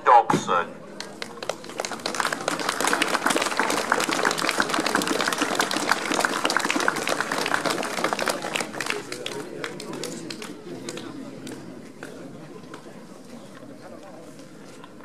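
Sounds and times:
audience applauding: 1.0 - 11.0.

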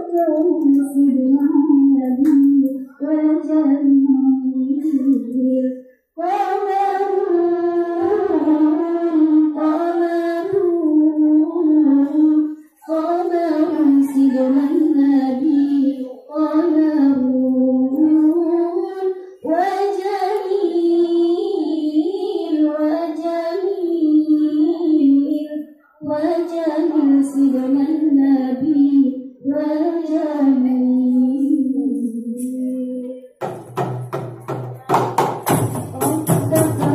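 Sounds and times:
girls singing unaccompanied: 0.0 - 36.9.

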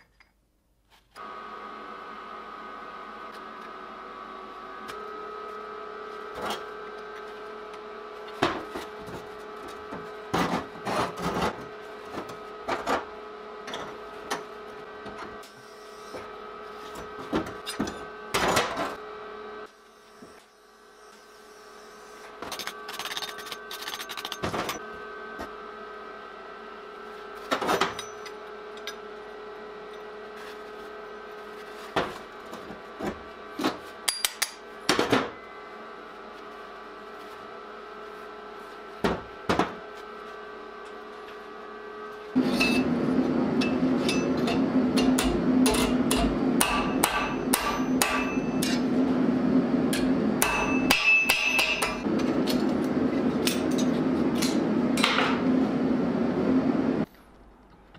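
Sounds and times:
steel pieces clinking: 22.5 - 24.8.

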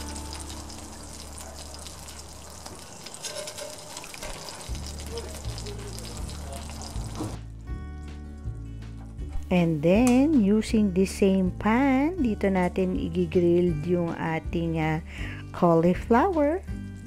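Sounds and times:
oil sizzling in a grill pan: 0.0 - 9.4
soft background music: 0.0 - 17.0.

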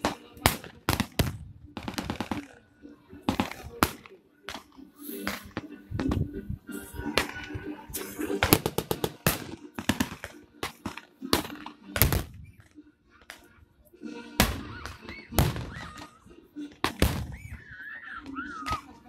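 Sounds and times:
blank gunshots: 0.0 - 2.6, 3.3 - 6.2, 8.1 - 12.6, 14.4 - 16.1, 16.8 - 17.5.

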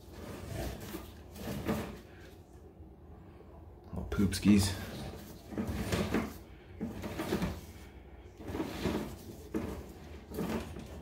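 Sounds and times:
cable sliding and rubbing: 0.0 - 2.4, 4.7 - 11.0.

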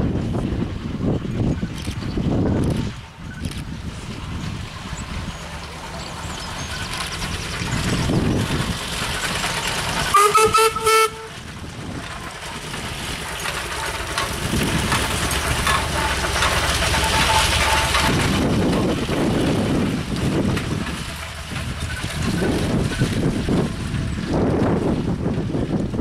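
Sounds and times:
steam tractor running: 0.0 - 26.0
steam whistle toot: 10.1 - 11.4.

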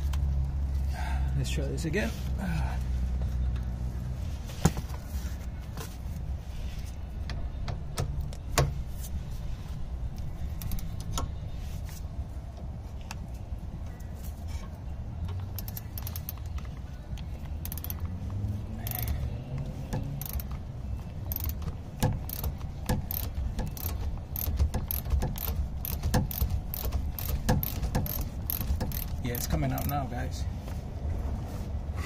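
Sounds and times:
sharp ratchet clicks: 10.6 - 11.2, 15.5 - 16.6, 17.6 - 18.1, 18.8 - 19.2, 20.0 - 20.6, 21.3 - 30.1
electric ratchet motor whir: 17.6 - 18.0, 18.8 - 19.2, 20.0 - 20.5, 21.3 - 21.6, 22.2 - 22.5, 23.1 - 29.9.

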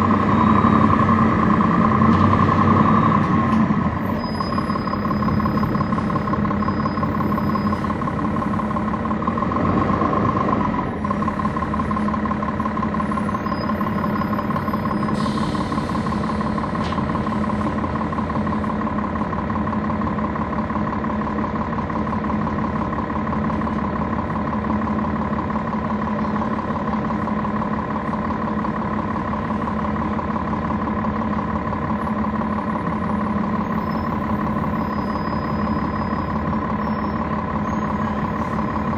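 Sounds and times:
bus diesel engine running: 0.0 - 38.9.

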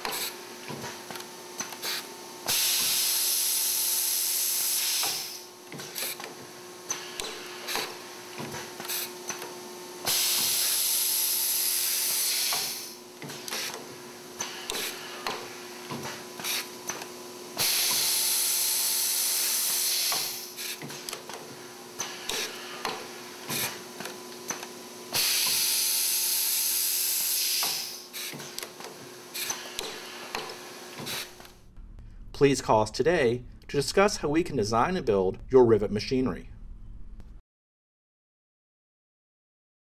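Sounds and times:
sharp pneumatic clicks: 0.0 - 3.6, 4.5 - 31.6
air hiss: 1.9 - 5.4, 10.1 - 13.0, 17.6 - 20.8, 25.2 - 28.3.

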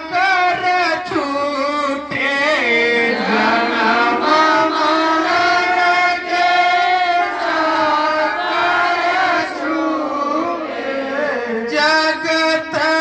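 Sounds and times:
group singing a hymn: 2.1 - 11.8.

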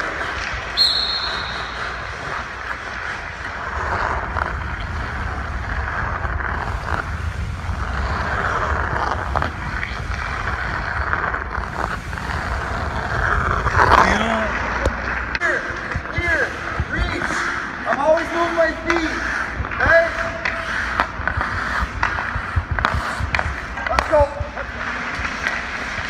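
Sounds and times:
skate blades scraping ice: 0.0 - 26.0
wind rumble on microphone: 3.6 - 14.0.

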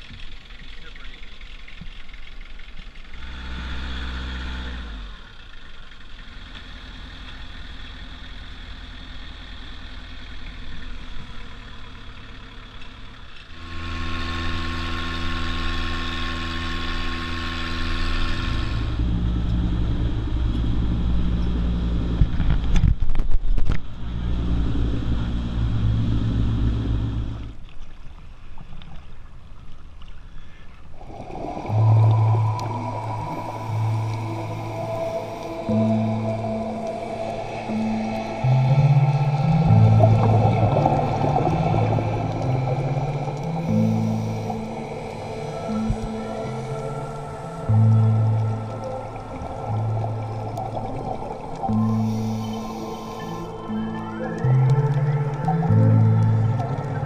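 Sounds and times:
boat engine running: 0.0 - 30.0, 30.8 - 57.0.

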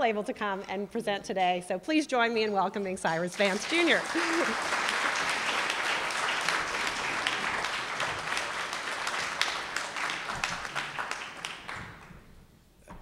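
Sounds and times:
audience applauding: 3.4 - 12.3.

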